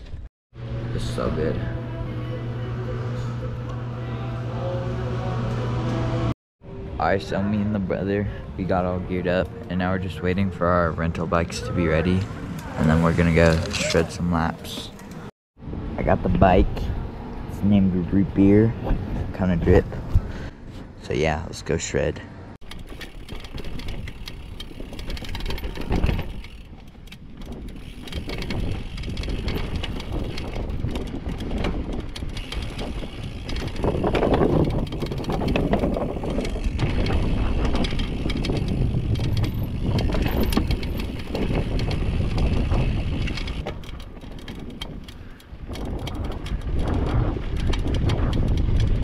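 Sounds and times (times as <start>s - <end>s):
bike crossing wooden boardwalk: 7.2s - 15.3s, 22.6s - 49.0s
bike rattling and clicking: 8.6s - 15.3s, 22.6s - 49.0s
bike tyres rolling on dirt: 11.9s - 15.3s, 22.6s - 49.0s
wind on microphone: 23.6s - 49.0s.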